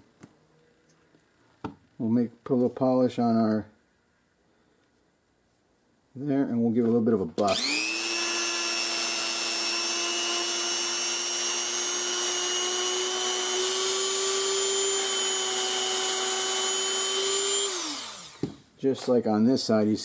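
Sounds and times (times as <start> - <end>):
rotary tool whining: 7.5 - 18.6.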